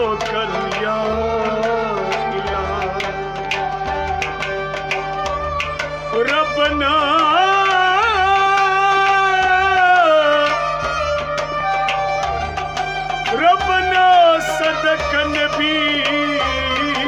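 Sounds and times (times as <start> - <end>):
man singing with vibrato: 0.0 - 4.0, 6.1 - 11.4, 13.3 - 17.0
drum beating slowly: 0.0 - 17.0
harmonium chords: 0.0 - 17.0.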